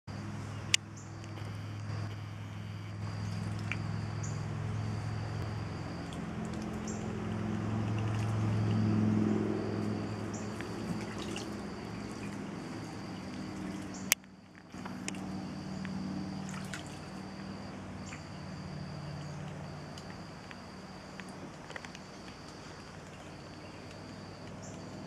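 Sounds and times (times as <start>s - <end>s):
steady low hum: 0.1s - 25.0s
water sloshing and dripping: 3.0s - 4.5s, 5.4s - 25.0s
ducks splashing in water: 6.0s - 14.0s, 16.3s - 17.3s.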